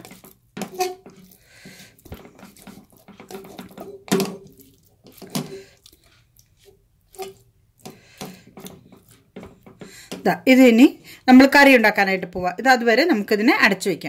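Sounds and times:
wet squelching and patting: 0.0s - 10.6s.

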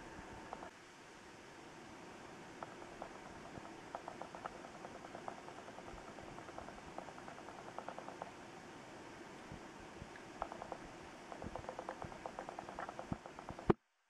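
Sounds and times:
steady rain falling: 0.0s - 13.8s
sharp ticks on a hard surface: 2.6s - 8.4s, 10.0s - 13.8s.

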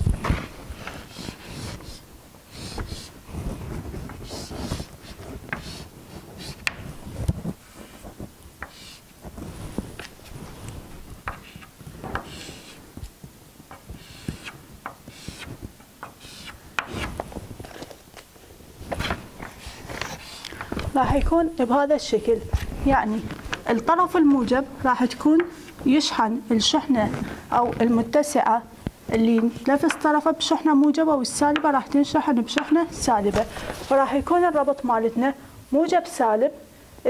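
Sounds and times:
chalk scratching on blackboard: 0.8s - 3.2s, 4.1s - 6.8s, 8.6s - 9.1s, 11.2s - 12.8s, 13.8s - 17.2s, 19.5s - 20.5s.

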